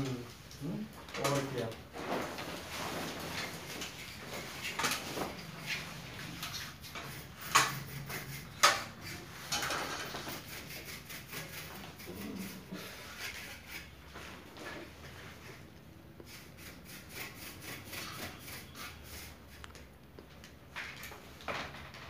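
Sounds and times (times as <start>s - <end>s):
cloth bag rustling and rubbing: 1.9s - 6.3s.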